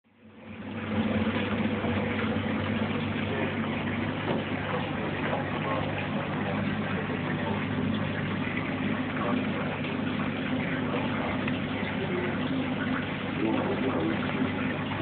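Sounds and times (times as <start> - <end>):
pump motor hum: 0.0 - 15.0
water bubbling and splashing: 0.1 - 15.0.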